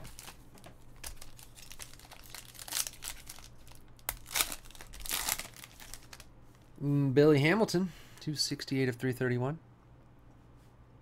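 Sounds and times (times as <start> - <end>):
foil wrapper crinkling: 0.0 - 6.3.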